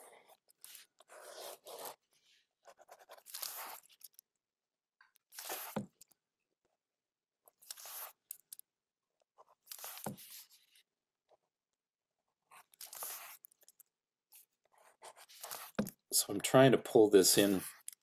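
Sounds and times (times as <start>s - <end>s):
pen scratching on paper: 0.0s - 4.0s, 5.4s - 5.8s, 7.7s - 8.2s, 9.4s - 10.8s, 12.4s - 13.5s, 14.6s - 16.0s, 17.4s - 17.9s.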